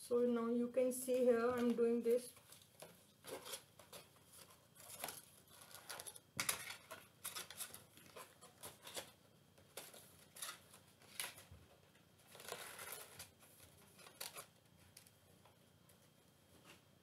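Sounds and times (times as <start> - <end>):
stiff card being folded: 2.4 - 11.5, 12.2 - 15.1.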